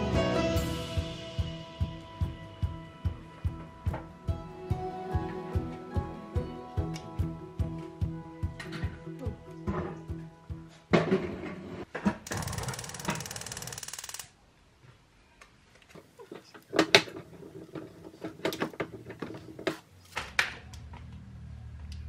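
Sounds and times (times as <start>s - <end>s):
fast mechanical rattle: 12.3s - 14.3s.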